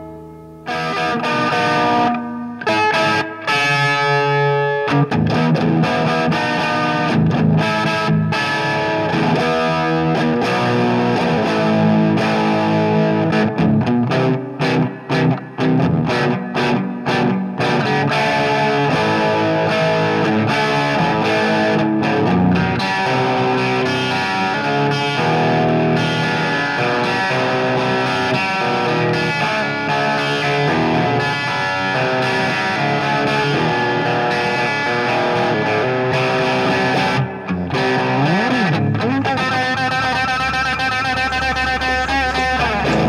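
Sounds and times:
rock music with distorted guitar: 0:00.0 - 0:43.0.

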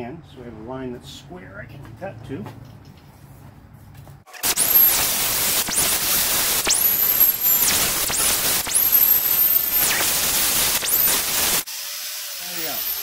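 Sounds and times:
grinder wheel hissing in metal: 0:04.3 - 0:13.0
angle grinder motor whine: 0:04.4 - 0:13.0.

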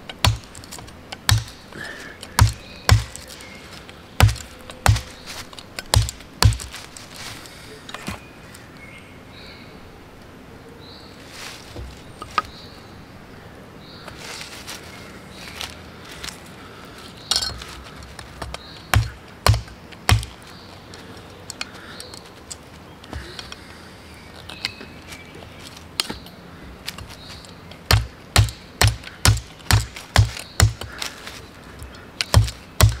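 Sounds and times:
billhook chopping a branch: 0:00.0 - 0:01.6, 0:02.2 - 0:03.4, 0:04.2 - 0:06.8, 0:17.3 - 0:20.5, 0:26.0 - 0:31.2, 0:31.8 - 0:33.0
birds chirping faintly: 0:00.0 - 0:33.0.

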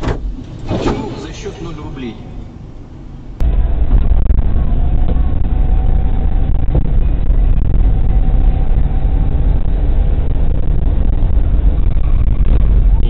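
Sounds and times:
engine and road rumble in cabin: 0:00.0 - 0:13.0.

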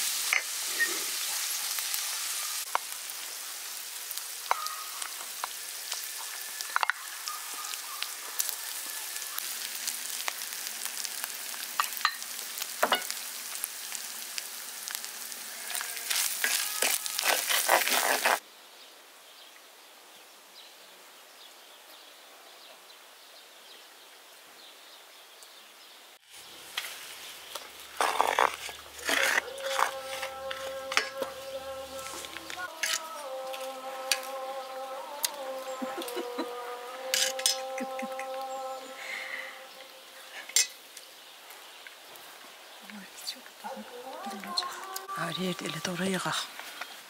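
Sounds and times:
meat sizzling in pot: 0:00.0 - 0:18.4, 0:26.2 - 0:42.3
wooden spoon scraping pot: 0:16.2 - 0:18.4, 0:27.9 - 0:33.0.

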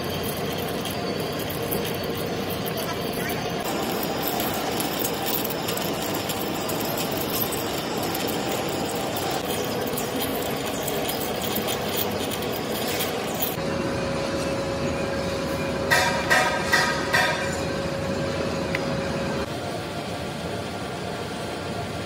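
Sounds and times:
metal chips clicking: 0:00.0 - 0:13.6
lathe motor hum: 0:00.0 - 0:14.0.

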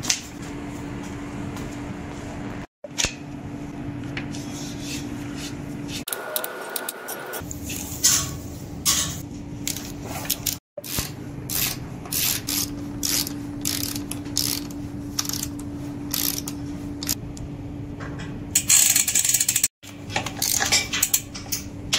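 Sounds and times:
ratcheting tools clicking: 0:09.7 - 0:17.2, 0:18.6 - 0:21.6.

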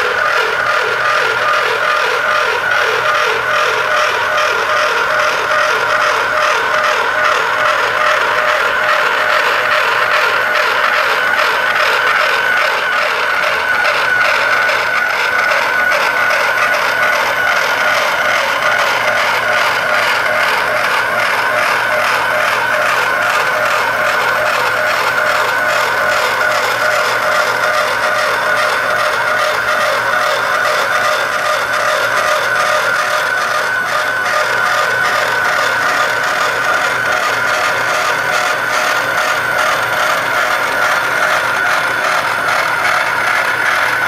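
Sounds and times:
motor high whine: 0:00.0 - 0:44.0.

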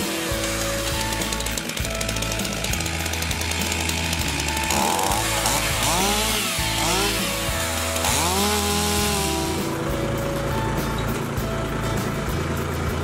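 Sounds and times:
chainsaw revving: 0:00.0 - 0:10.2
background music: 0:00.0 - 0:13.0.

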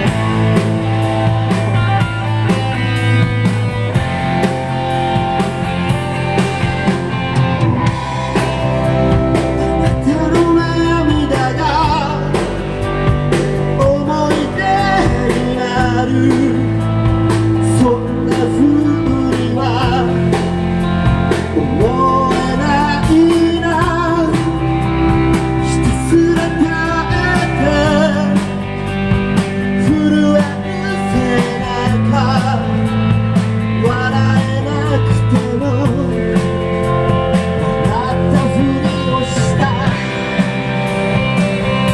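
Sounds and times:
bass guitar: 0:00.0 - 0:41.9
drum kit: 0:00.0 - 0:41.9
electric guitars: 0:00.0 - 0:41.9
man singing: 0:09.3 - 0:28.8, 0:29.6 - 0:36.7, 0:37.6 - 0:40.5.

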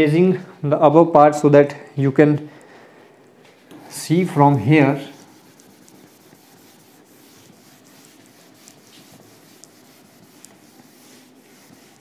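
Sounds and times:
eraser rubbing on whiteboard: 0:04.5 - 0:12.0.

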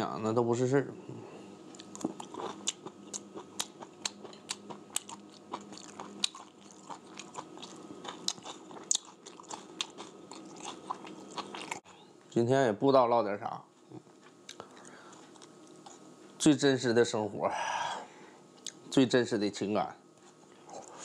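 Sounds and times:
person chewing food: 0:01.7 - 0:11.9, 0:13.9 - 0:16.0.

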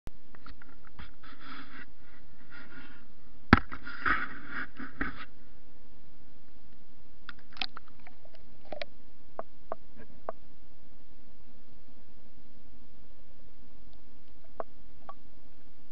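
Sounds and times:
faint electrical hum: 0:00.1 - 0:15.9.

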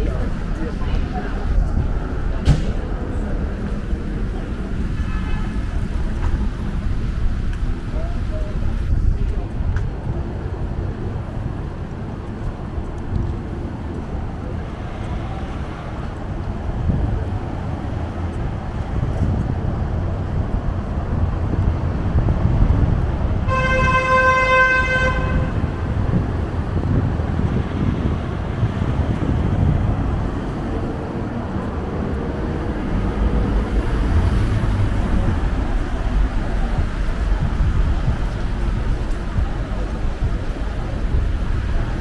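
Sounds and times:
street traffic rumbling: 0:00.0 - 0:42.0
vehicle horn blast: 0:05.0 - 0:05.7, 0:23.4 - 0:25.7.

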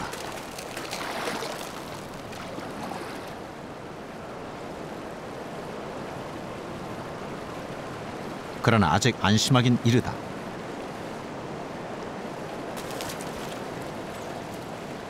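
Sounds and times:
water sloshing and splashing: 0:00.0 - 0:03.6, 0:12.7 - 0:15.0
steady hiss of lake water: 0:00.0 - 0:15.0.

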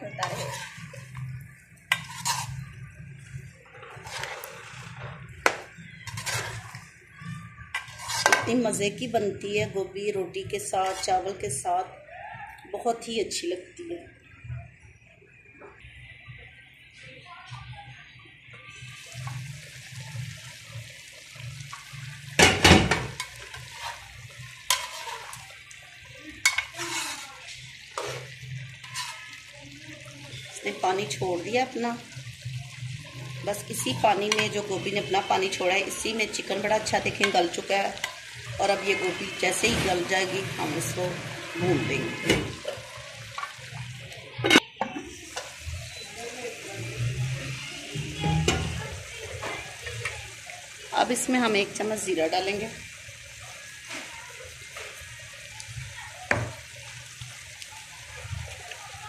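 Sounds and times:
spatula scraping metal pot: 0:00.0 - 0:02.8, 0:03.7 - 0:08.8, 0:10.6 - 0:11.5, 0:23.0 - 0:25.6, 0:26.4 - 0:29.4
metal pot lid clattering: 0:07.8 - 0:08.6.

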